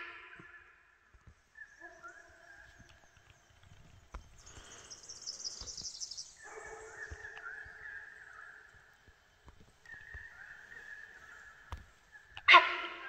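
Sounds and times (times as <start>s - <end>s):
deer honking: 12.4s - 13.0s.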